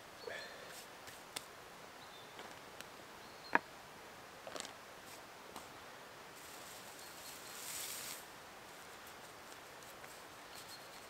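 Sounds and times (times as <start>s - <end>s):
groundsheet rustling: 6.4s - 11.0s.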